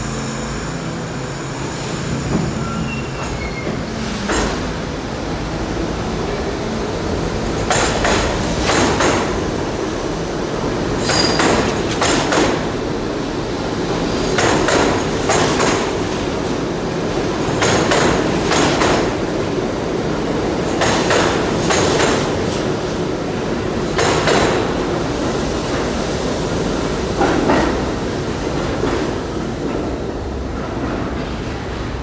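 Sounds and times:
train rumble: 0.0s - 32.0s
wheels clacking over rail joint: 2.3s - 4.8s, 14.3s - 16.1s, 20.6s - 22.6s.

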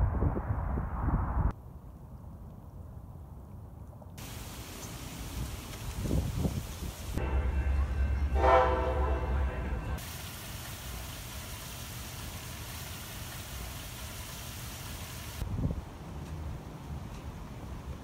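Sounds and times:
outdoor background hiss: 4.2s - 7.9s, 9.9s - 18.0s
deep train rumble: 4.2s - 13.6s
train horn blowing: 7.2s - 10.0s.

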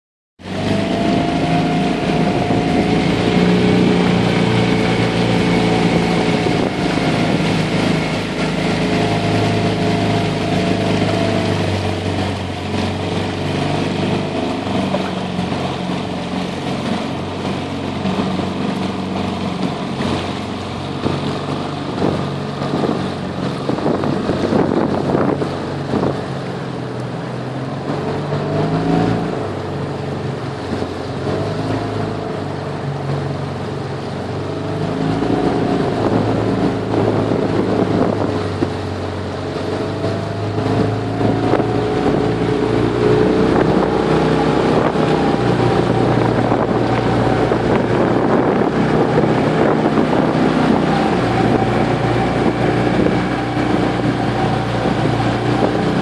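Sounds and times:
outboard motor running: 0.4s - 56.0s.

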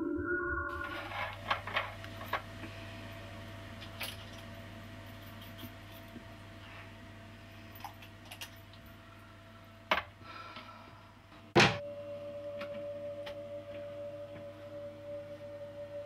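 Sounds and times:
steady ringing tone: 0.0s - 6.2s, 11.8s - 16.0s
low droning ambience: 0.0s - 16.0s.

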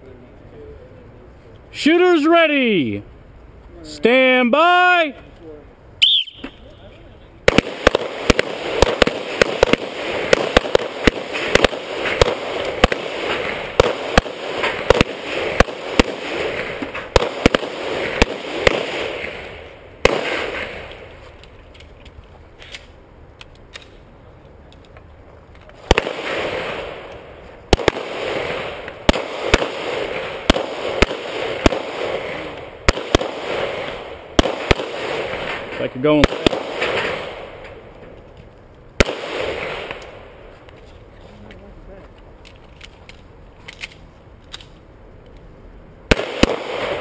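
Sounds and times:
handguns firing rapid shots: 7.5s - 19.3s, 27.8s - 35.4s, 36.2s - 37.4s, 46.1s - 47.0s.

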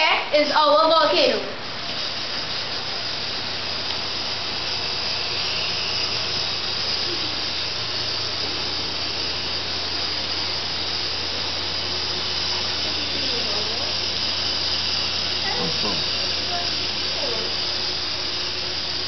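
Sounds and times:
hiss of venting smoke: 1.0s - 19.0s.

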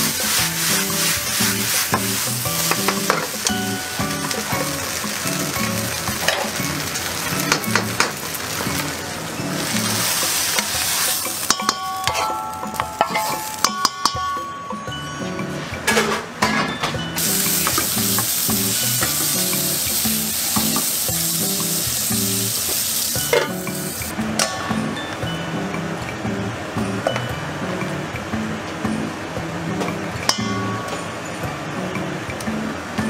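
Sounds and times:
utensil clinking and scraping pan: 0.0s - 4.8s, 9.6s - 14.2s, 23.2s - 23.8s
fried rice sizzling in a pan: 0.0s - 11.8s, 17.2s - 24.1s.

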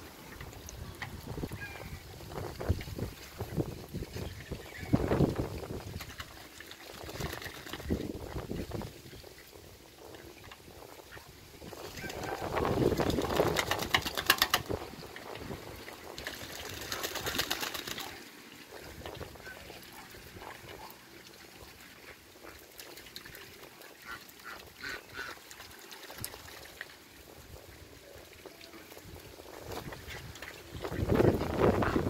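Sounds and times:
ducks splashing in water: 0.0s - 32.0s
duck calls: 24.0s - 25.4s.

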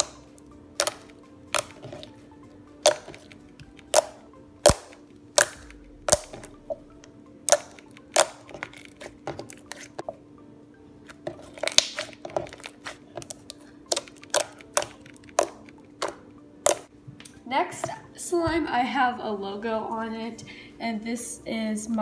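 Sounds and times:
air popping from slime: 3.9s - 6.8s, 11.6s - 12.2s.

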